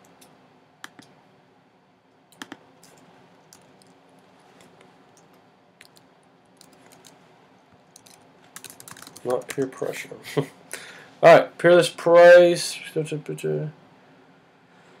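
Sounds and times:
faint keyboard typing: 2.3 - 7.2, 7.8 - 9.9.

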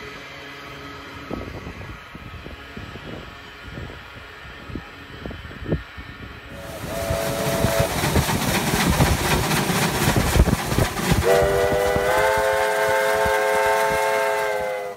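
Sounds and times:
steam locomotive exhaust chuff: 0.0 - 14.9
steam whistle: 6.5 - 8.1, 11.2 - 14.9.

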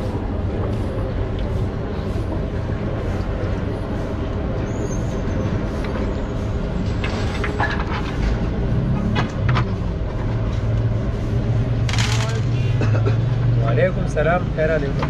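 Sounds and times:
traffic engine hum: 0.0 - 15.0.

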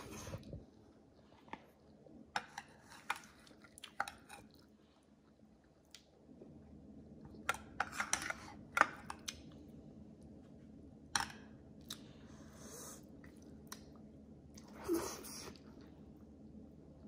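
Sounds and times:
person chewing food: 2.7 - 7.5, 11.7 - 14.8.

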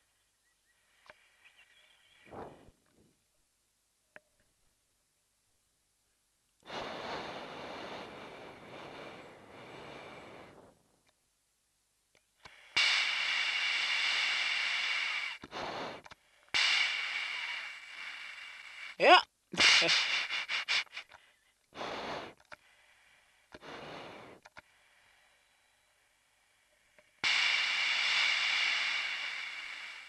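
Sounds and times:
noisy breathing through oxygen mask: 6.6 - 10.9, 12.4 - 30.0.

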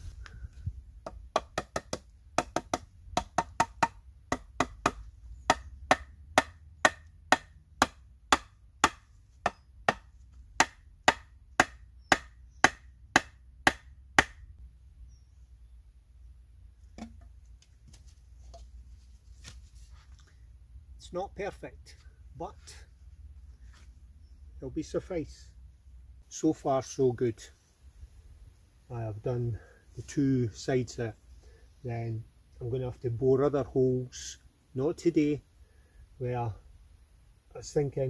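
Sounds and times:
hatchet striking wooden pole: 1.0 - 14.5, 17.0 - 17.3.

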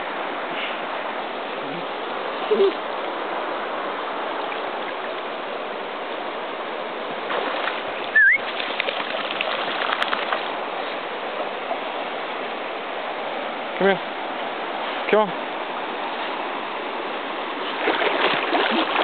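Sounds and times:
stream water flowing: 0.0 - 19.0
loud rising whistle: 8.2 - 8.4.

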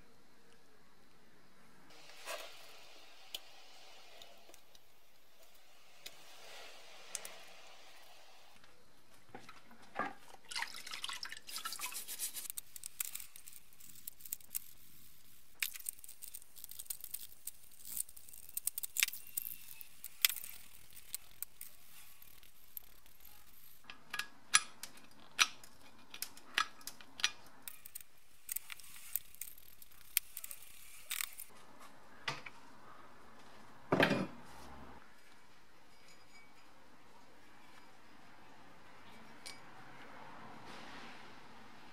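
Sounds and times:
metal parts splashing in liquid: 10.3 - 13.6.

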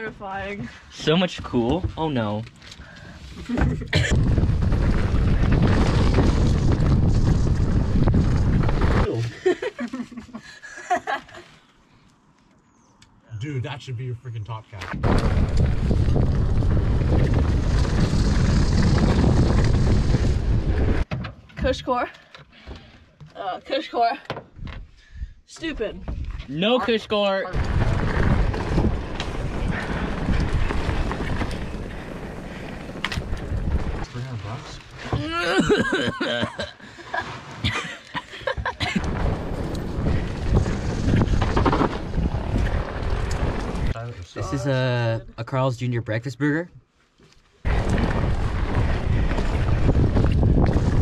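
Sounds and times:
bike tyres rumbling and rattling: 0.0 - 11.2, 14.8 - 23.3, 26.0 - 44.8, 47.2 - 51.0
wind noise on microphone: 3.6 - 9.1, 15.0 - 21.1, 27.5 - 34.1, 38.7 - 44.0, 47.6 - 51.0.

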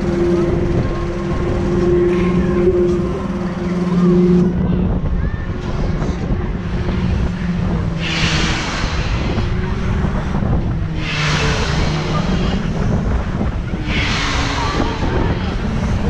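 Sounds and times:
low machinery hum: 0.0 - 16.0
wind rushing over microphone: 0.0 - 16.0.

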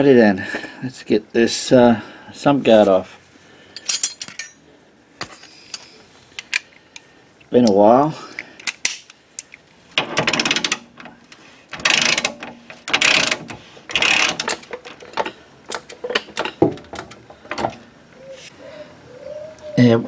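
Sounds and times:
socket ratchet clicking: 11.8 - 14.8.

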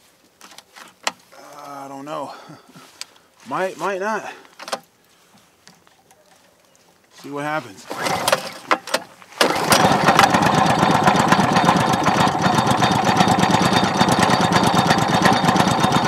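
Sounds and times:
pull cord starting: 7.8 - 16.0
small engine running: 7.9 - 8.6, 9.4 - 16.0.

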